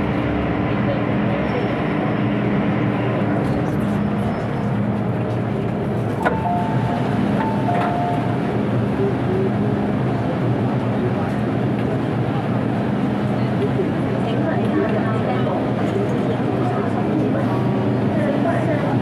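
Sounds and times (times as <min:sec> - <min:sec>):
train wheels rumbling on rail: 0:00.0 - 0:19.0
short two-note beep: 0:06.3 - 0:08.4.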